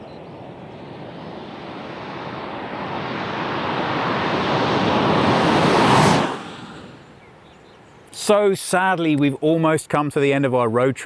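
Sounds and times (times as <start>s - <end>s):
car approaching at speed: 0.0s - 7.9s.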